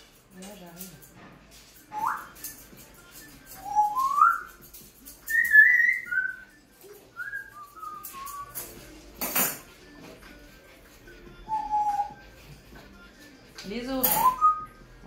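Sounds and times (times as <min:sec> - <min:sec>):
person whistling a tune: 0:01.9 - 0:02.5, 0:03.3 - 0:04.6, 0:05.3 - 0:06.6, 0:07.2 - 0:08.7, 0:11.3 - 0:12.4, 0:14.1 - 0:14.8.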